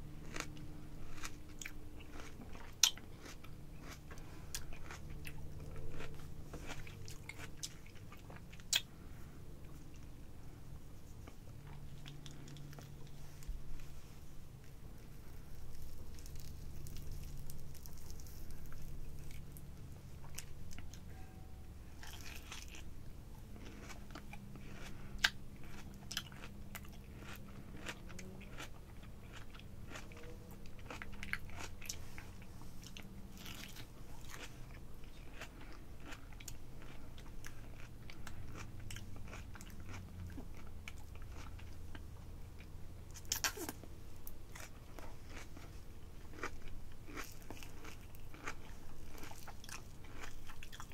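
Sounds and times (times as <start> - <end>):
wet bites and chewing: 0.3 - 9.0, 15.5 - 19.6, 32.8 - 45.7.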